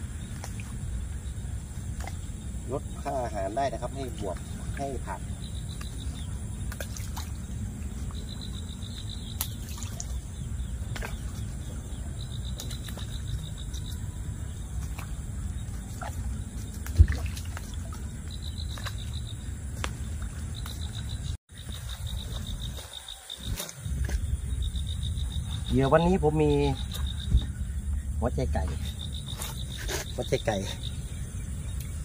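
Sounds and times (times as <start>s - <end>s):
low steady rumble: 0.0s - 12.4s, 23.8s - 29.2s
insect chirping in fast pulses: 0.0s - 32.0s.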